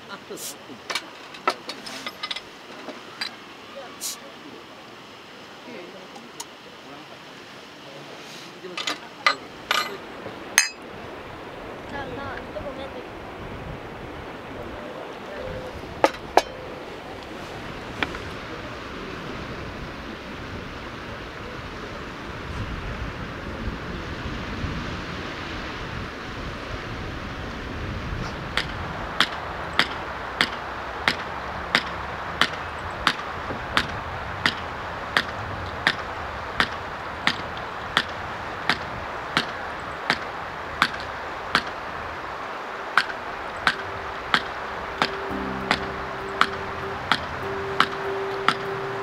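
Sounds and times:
steady rushing hiss: 0.0 - 49.0
steady musical note: 42.5 - 49.0.

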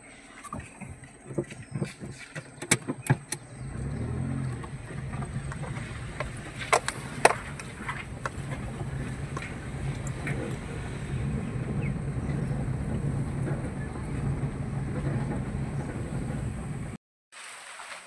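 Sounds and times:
car engine hum: 0.0 - 17.0
tyres on stone paving: 0.0 - 17.0
sharp clicks and knocks: 0.5 - 3.5, 4.4 - 10.8.

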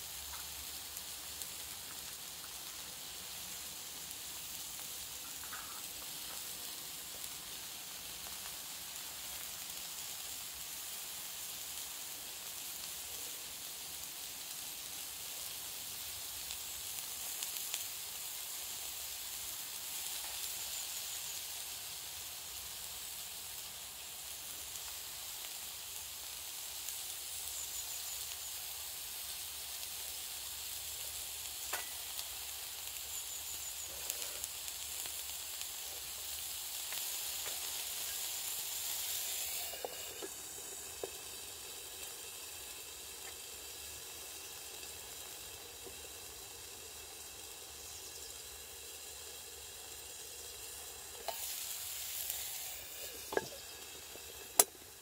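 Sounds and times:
burger patty sizzling in pan: 0.0 - 55.0
light clicks of dishes: 5.2 - 6.5.

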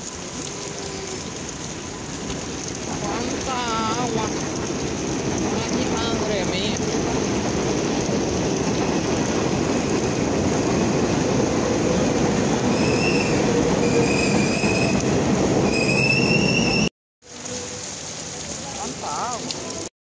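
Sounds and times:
heavy rain on umbrella: 0.0 - 12.6, 17.2 - 19.9
high-pitched squeals: 12.6 - 16.9.

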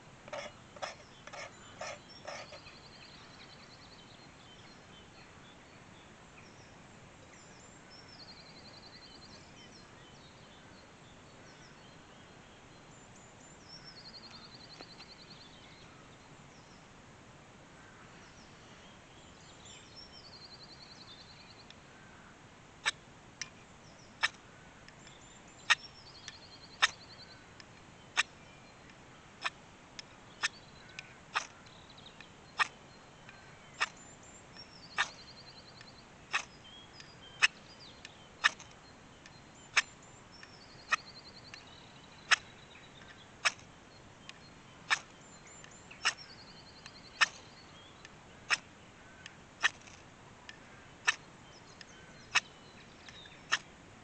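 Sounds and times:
faint bird trills: 0.2 - 4.8, 19.9 - 53.7
knife scraping firesteel: 0.3 - 2.7.

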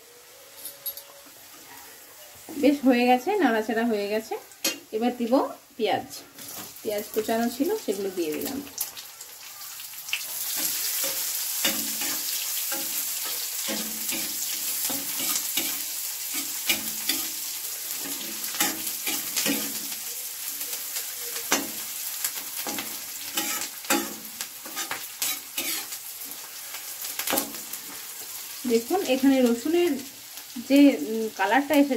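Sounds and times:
onions sizzling in hot oil: 0.0 - 31.9
metal spatula scraping pan: 10.5 - 20.0, 22.6 - 26.4.

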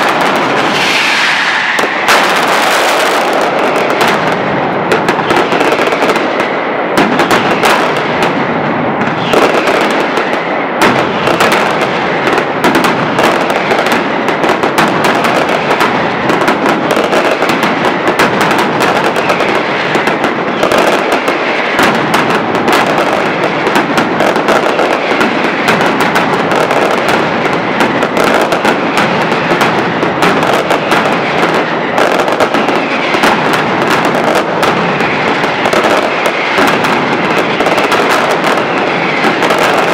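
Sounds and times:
firecrackers banging: 0.0 - 39.9.

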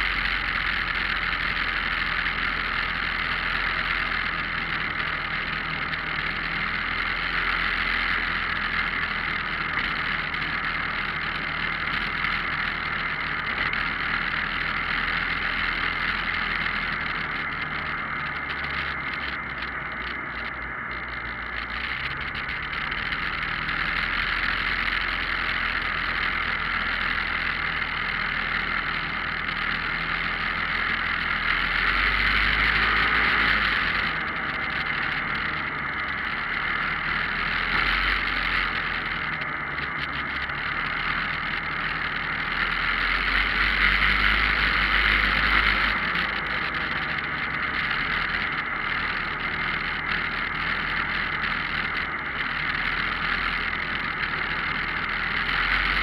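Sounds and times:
vehicle engine tyres and wind rush: 0.0 - 56.0.

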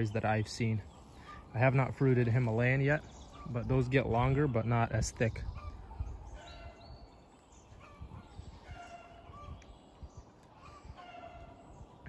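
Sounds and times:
birds calling: 0.0 - 12.0.

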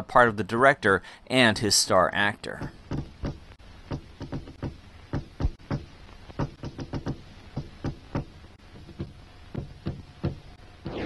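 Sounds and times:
knocking on wooden door: 2.6 - 10.4.

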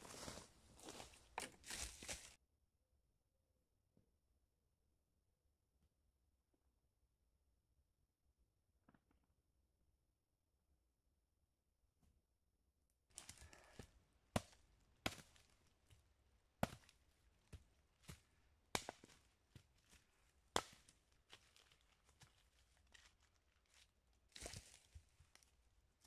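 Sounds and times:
axe chopping wood: 14.3 - 15.4, 16.6 - 16.9, 18.7 - 19.2, 20.5 - 20.8.

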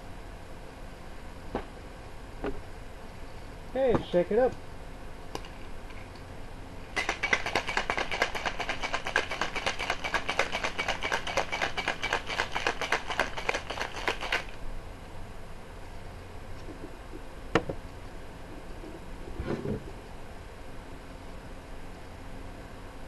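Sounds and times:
ice rattling in cocktail shaker: 7.0 - 14.6.

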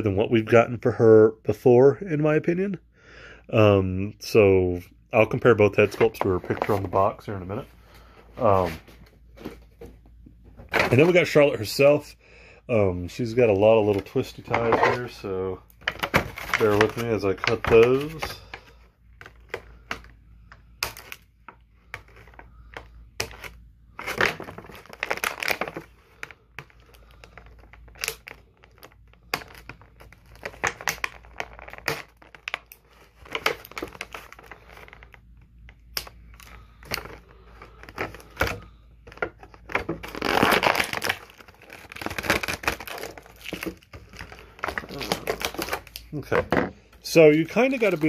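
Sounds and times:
plastic packaging crinkling: 5.2 - 9.8, 13.2 - 19.8, 20.8 - 48.0.

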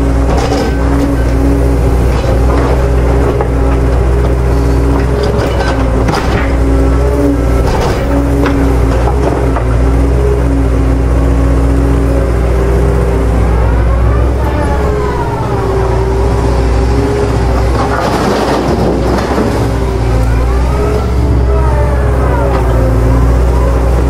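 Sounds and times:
engine whine: 0.0 - 24.0
heavy machinery diesel engine running: 0.0 - 24.0.

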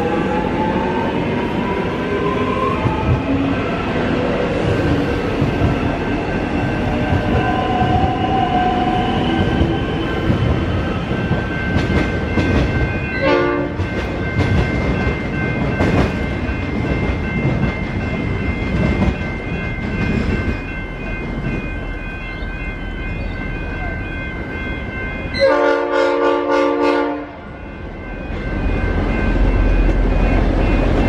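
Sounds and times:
electric train pulling out: 0.0 - 13.2
thin high ringing tones: 5.8 - 25.8.

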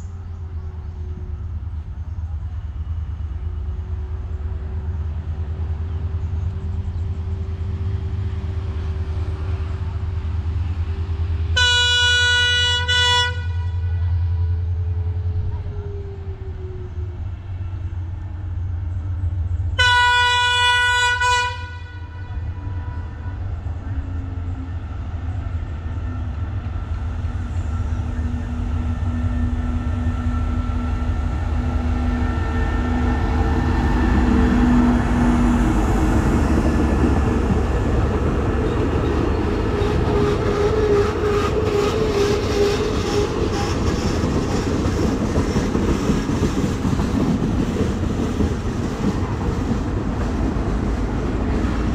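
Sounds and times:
locomotive horn blast: 11.5 - 14.6, 19.8 - 24.0
locomotive engine running: 22.3 - 51.9
train wheels clicking over rail joints: 28.5 - 51.9.

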